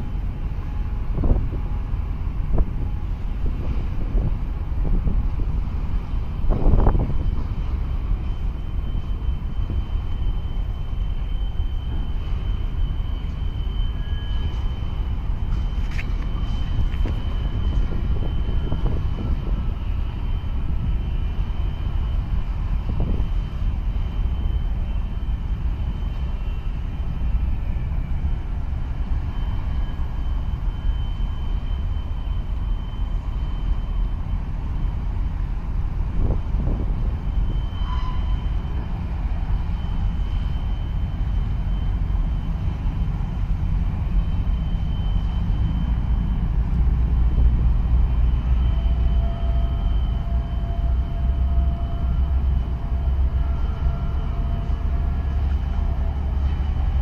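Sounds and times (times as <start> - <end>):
boat engines rumbling: 0.0 - 57.0
thin high whine: 0.0 - 57.0.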